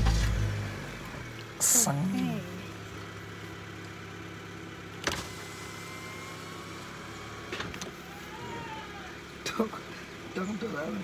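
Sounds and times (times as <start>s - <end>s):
car engine idling: 0.0s - 11.0s
power window motor whine: 4.7s - 9.3s.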